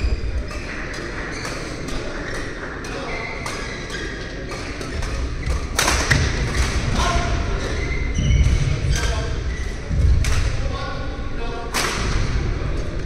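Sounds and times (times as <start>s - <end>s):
shoe squeaks: 0.1s - 5.6s, 7.6s - 9.9s.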